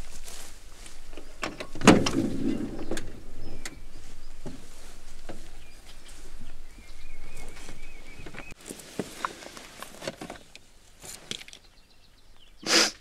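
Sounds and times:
car door clunk: 1.4s - 3.8s.

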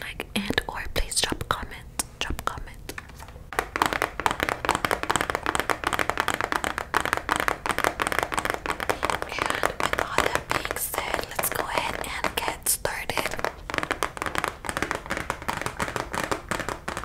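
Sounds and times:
fingernail tapping on cardboard box: 3.6s - 12.6s, 13.2s - 17.0s.

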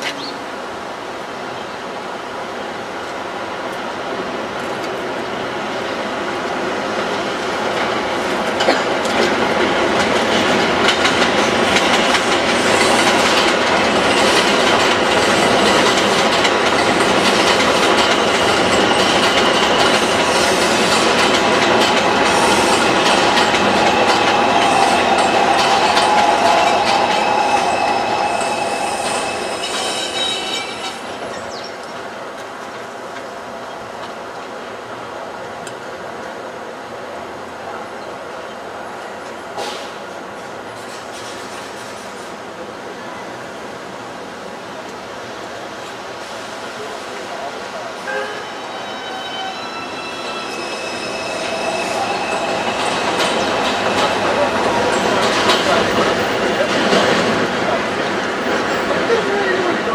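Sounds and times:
train wheels on rails: 0.0s - 59.9s
high wheel squeal: 23.8s - 31.3s, 48.1s - 55.2s.

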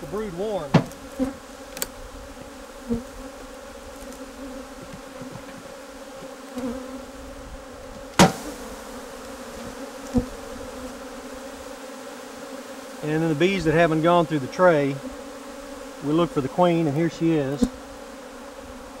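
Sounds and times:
bees buzzing: 0.0s - 19.0s
knocks on wooden hive box: 0.6s - 1.0s, 4.8s - 5.7s, 8.2s - 8.6s.

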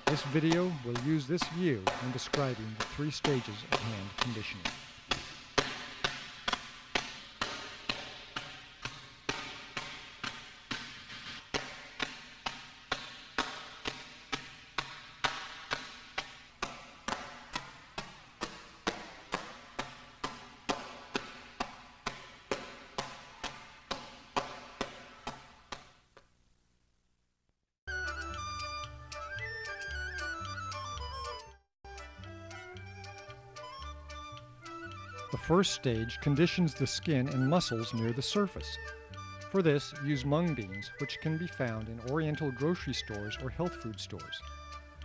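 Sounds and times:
palms slapping cloth bag: 0.0s - 26.3s.

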